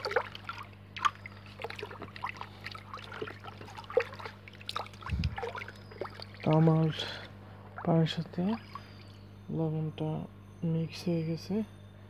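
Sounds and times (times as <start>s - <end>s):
water sloshing in a bucket: 0.0s - 9.2s
steady low hum: 0.0s - 12.0s.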